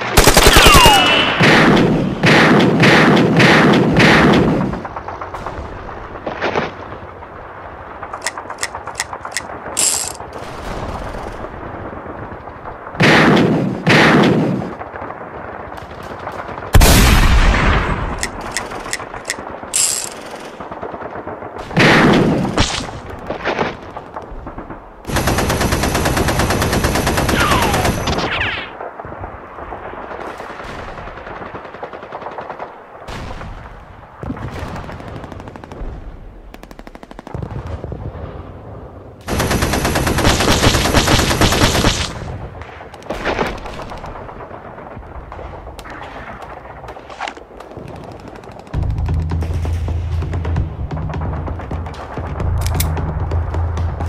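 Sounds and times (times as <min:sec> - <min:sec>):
machine-gun fire: 0:00.0 - 0:06.8, 0:08.1 - 0:11.9, 0:12.9 - 0:28.2, 0:39.3 - 0:48.8
gunshots: 0:00.0 - 0:07.1, 0:07.9 - 0:28.8, 0:39.3 - 0:53.5.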